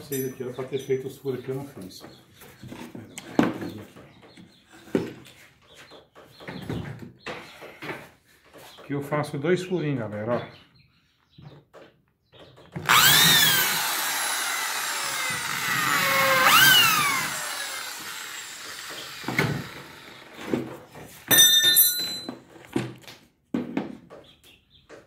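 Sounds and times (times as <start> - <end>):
electric drill whining: 12.8 - 20.5.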